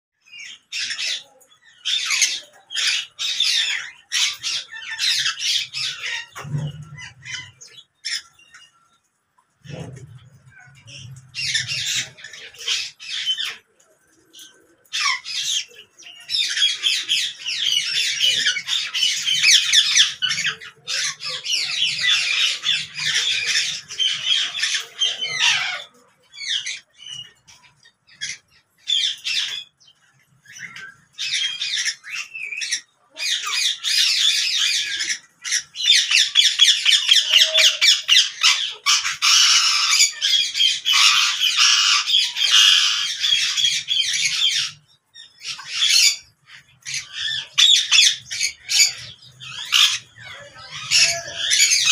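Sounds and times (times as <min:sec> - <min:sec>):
parakeets squawking: 0:00.2 - 0:08.8, 0:09.6 - 0:13.8, 0:14.4 - 0:29.7, 0:30.4 - 0:51.9.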